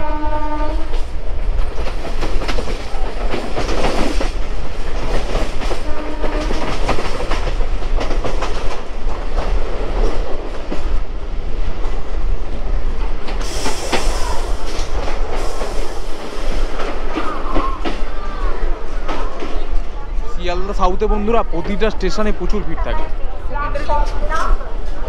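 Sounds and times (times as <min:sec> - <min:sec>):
train wheels rumbling on rails: 0:00.0 - 0:25.0
wheels clacking over rail joints: 0:00.9 - 0:12.1.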